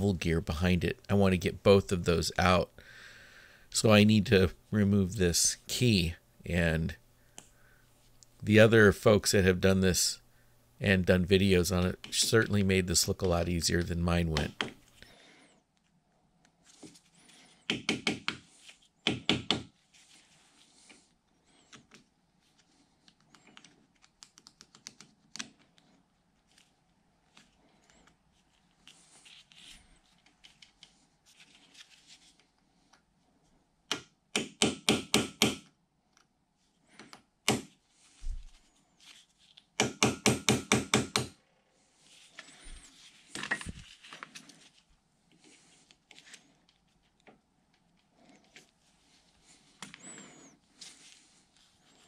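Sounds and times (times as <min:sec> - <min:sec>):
hammer tapping metal punch: 0:39.8 - 0:41.3.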